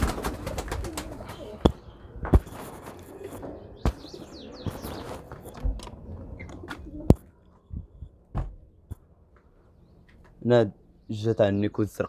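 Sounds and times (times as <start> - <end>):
pigeons cooing: 0.0 - 7.9
sharp knocks: 8.3 - 8.6.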